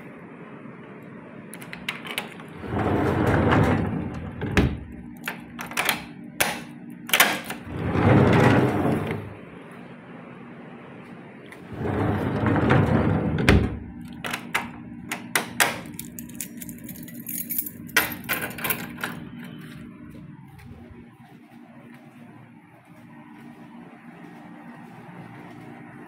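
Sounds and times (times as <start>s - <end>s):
steady low hum: 0.0s - 26.0s
door scraping shut with thud: 2.6s - 4.9s, 7.6s - 9.4s, 11.6s - 13.9s
keys jingling: 15.8s - 19.7s.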